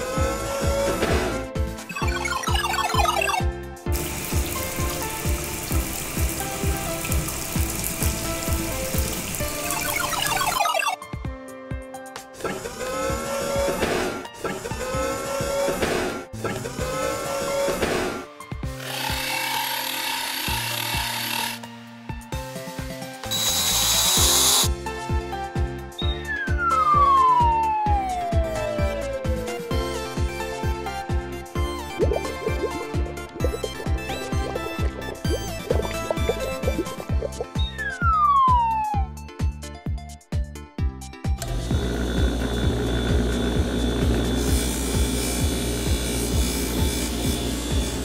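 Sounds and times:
background music with steady beat: 0:00.7 - 0:12.4, 0:21.0 - 0:41.9
falling cartoon whistle: 0:26.0 - 0:28.9, 0:37.6 - 0:39.2
background music with drum beat: 0:29.3 - 0:41.4.

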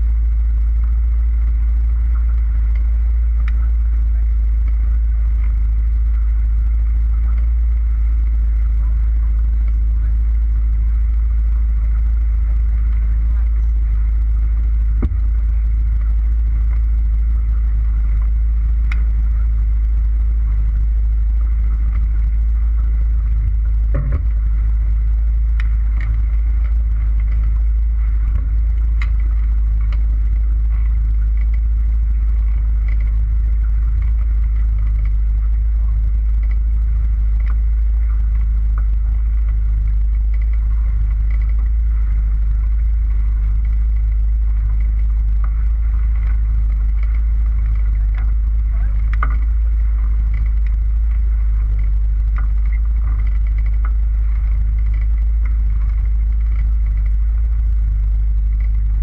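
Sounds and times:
motorboat engine rumble: 0:00.0 - 0:59.0.

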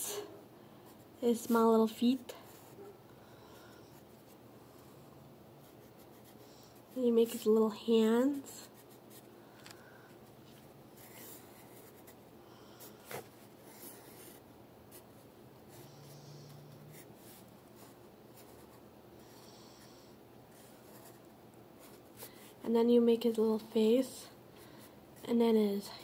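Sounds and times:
pencil scratching on paper: 0:05.6 - 0:07.4, 0:11.0 - 0:12.2, 0:13.0 - 0:18.8, 0:19.7 - 0:22.6.

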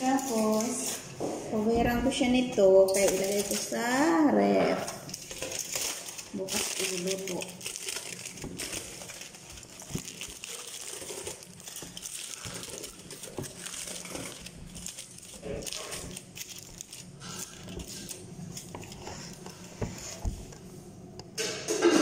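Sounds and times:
aluminium foil crinkling: 0:00.0 - 0:01.1, 0:02.6 - 0:20.3.

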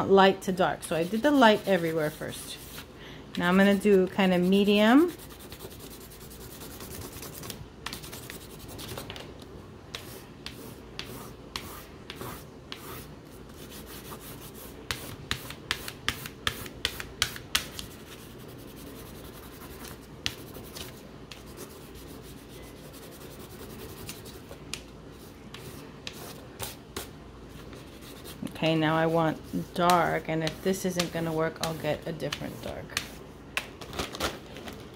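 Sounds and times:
crayon scratching on paper: 0:00.9 - 0:02.8, 0:03.6 - 0:09.0, 0:10.0 - 0:24.5.

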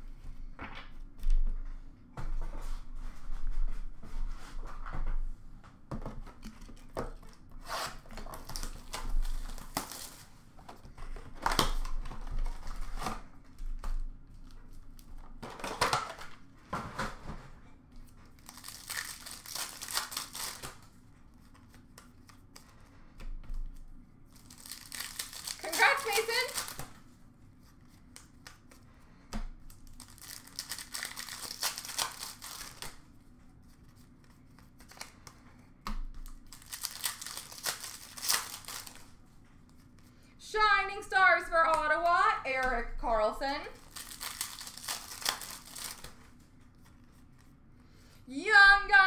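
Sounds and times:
wrappers tearing and crinkling: 0:07.6 - 0:10.4, 0:18.3 - 0:20.9, 0:24.3 - 0:26.9, 0:29.7 - 0:33.0, 0:36.2 - 0:39.1, 0:43.7 - 0:47.0.

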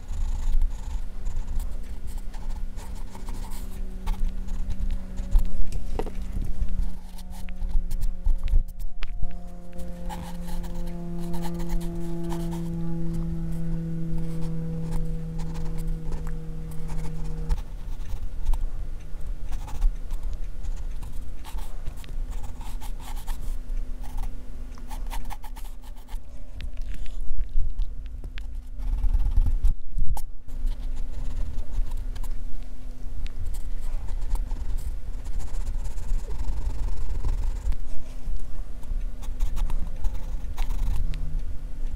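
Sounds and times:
pencil scratching on paper: 0:00.0 - 0:08.9, 0:09.6 - 0:18.6, 0:19.5 - 0:24.3, 0:33.5 - 0:37.8, 0:39.2 - 0:41.0
held humming tone: 0:00.0 - 0:41.9.

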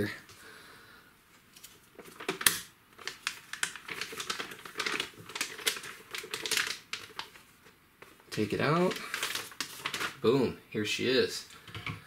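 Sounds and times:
plastic wrapping crinkling: 0:01.6 - 0:10.3.

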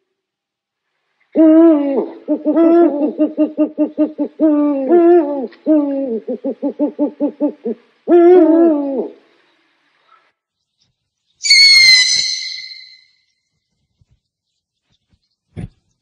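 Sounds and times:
owl hooting: 0:01.3 - 0:09.4, 0:11.4 - 0:13.2.

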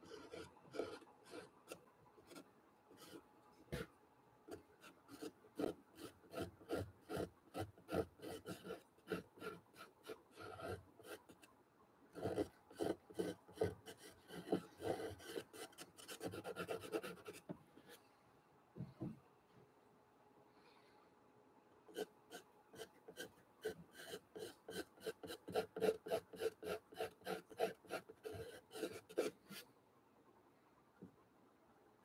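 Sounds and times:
pencil scratching on paper: 0:00.0 - 0:02.4, 0:03.0 - 0:03.9, 0:04.5 - 0:11.5, 0:12.2 - 0:18.0, 0:21.9 - 0:29.7.

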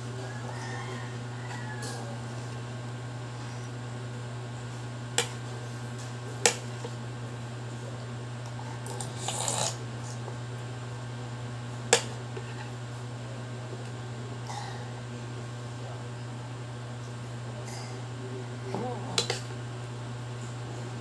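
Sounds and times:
steady low hum: 0:00.0 - 0:21.0
slurp: 0:09.0 - 0:09.8.

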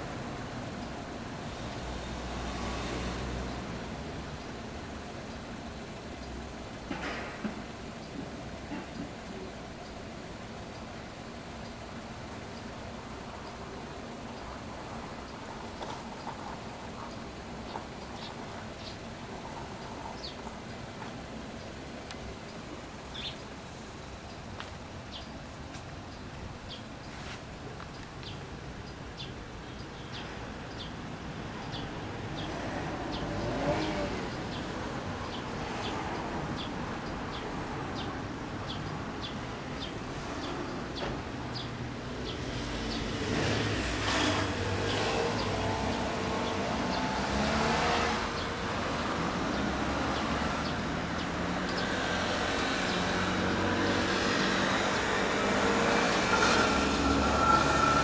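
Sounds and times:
road traffic passing: 0:00.0 - 0:58.0
regular high ticking: 0:07.6 - 0:33.4.

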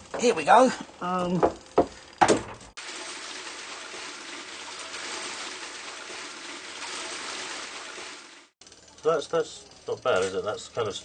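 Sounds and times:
water gushing: 0:02.6 - 0:08.6.

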